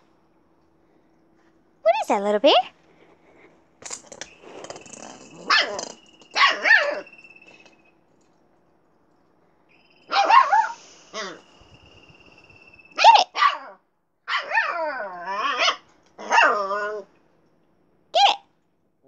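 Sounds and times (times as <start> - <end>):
puppy barking and yowling: 4.7 - 7.2, 10.1 - 11.4, 12.9 - 17.1.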